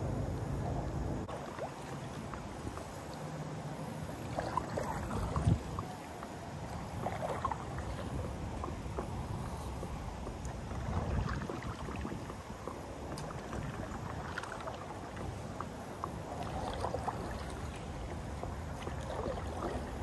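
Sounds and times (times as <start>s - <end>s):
water lapping against kayak hull: 0.0s - 20.0s
wind rumble on microphone: 4.3s - 20.0s.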